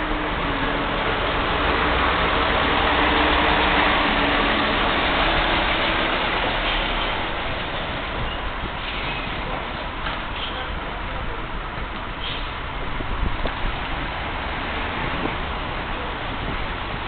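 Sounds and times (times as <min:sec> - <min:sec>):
heavy truck diesel engine: 0:00.0 - 0:17.0.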